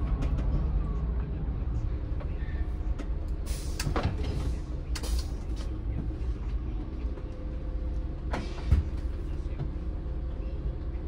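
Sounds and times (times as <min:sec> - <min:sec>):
bus engine and road rumble: 0:00.0 - 0:11.0
bus body rattles: 0:02.0 - 0:10.0.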